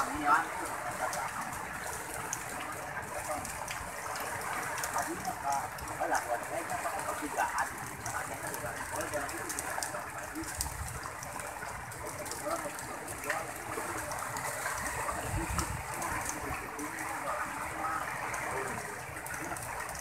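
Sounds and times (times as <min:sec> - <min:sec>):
sea water splashing against rocks: 0:00.0 - 0:20.0
wind buffeting microphone: 0:10.4 - 0:12.9, 0:14.0 - 0:16.8.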